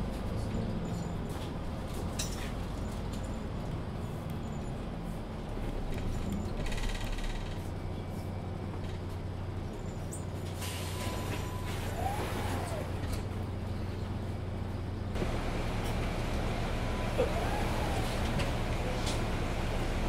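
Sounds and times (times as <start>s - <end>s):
bus body creaking and rattling: 0.0s - 20.0s
bus engine humming: 0.0s - 20.0s.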